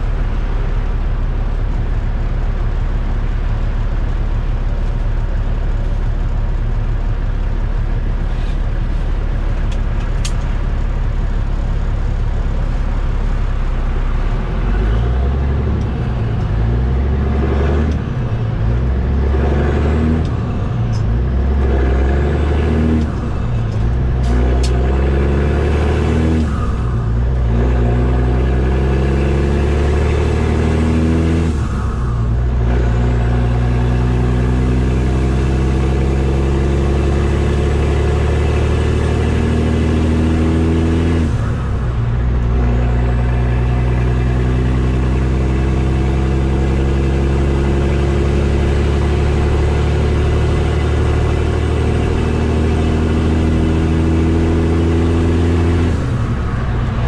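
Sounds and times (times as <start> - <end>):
truck engine shifting up through gears: 0.0 - 57.0.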